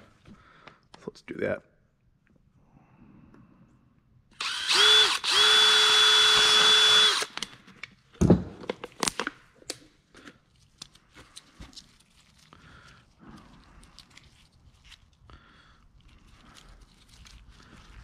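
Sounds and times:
cordless drill whining: 4.4 - 7.5.

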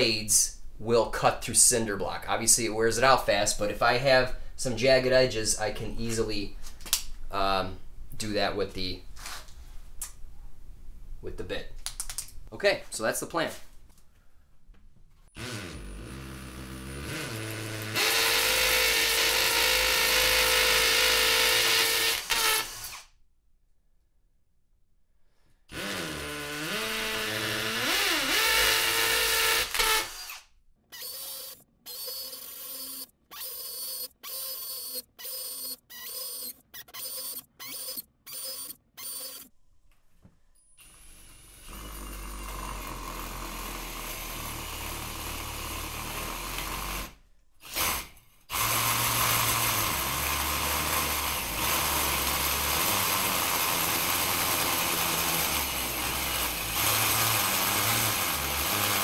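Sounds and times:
hole saw running against block: 15.4 - 22.9, 47.7 - 59.0
power drill boring into block: 15.4 - 23.1, 25.7 - 30.4, 31.0 - 39.5, 40.8 - 59.0.

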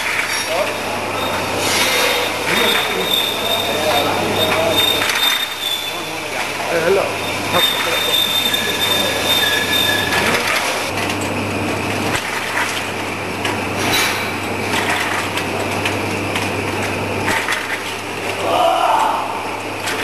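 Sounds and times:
conveyor rattle: 0.0 - 20.0
glass bottles clinking: 0.2 - 10.9.

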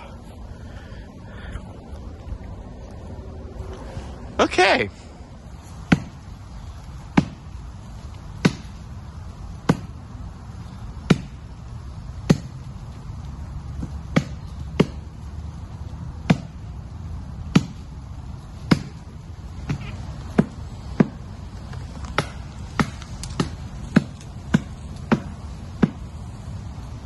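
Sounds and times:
axe chopping wood: 5.8 - 6.2, 7.0 - 7.6, 8.4 - 8.9, 9.6 - 10.0, 10.6 - 11.4, 12.2 - 12.6, 13.8 - 15.1, 16.2 - 16.7, 17.4 - 17.9, 18.6 - 21.2, 22.0 - 26.2.

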